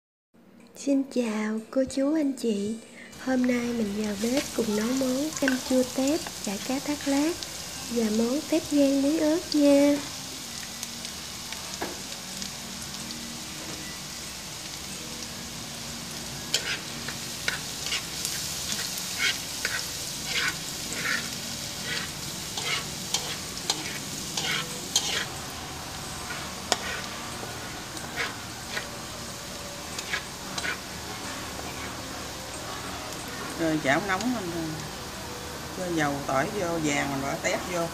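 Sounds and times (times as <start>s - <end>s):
garlic sizzling in oil: 3.0s - 37.9s
spatula scraping wok: 3.1s - 10.6s, 15.5s - 35.7s.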